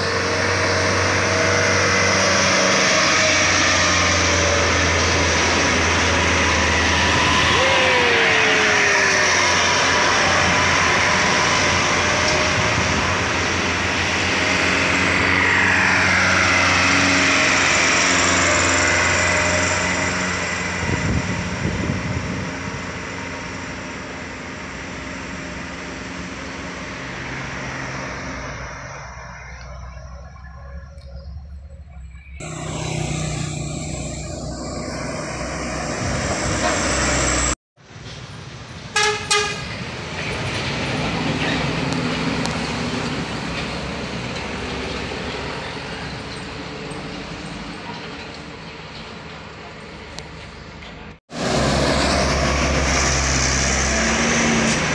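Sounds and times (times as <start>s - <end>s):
truck engine running close: 0.0s - 37.6s, 39.0s - 54.9s
diesel truck engines climbing: 0.0s - 54.9s
short horn toot: 39.0s - 39.7s.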